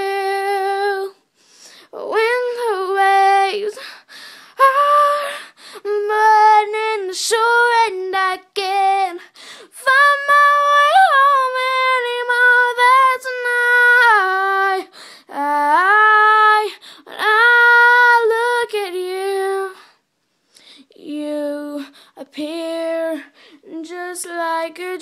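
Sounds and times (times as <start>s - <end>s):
girl singing: 0.0s - 20.0s, 20.6s - 25.0s
breaths: 1.2s - 2.0s, 3.8s - 4.6s, 5.2s - 5.9s, 9.2s - 9.7s, 14.9s - 15.3s, 16.7s - 17.1s, 19.8s - 20.9s, 21.8s - 22.2s, 23.3s - 23.7s.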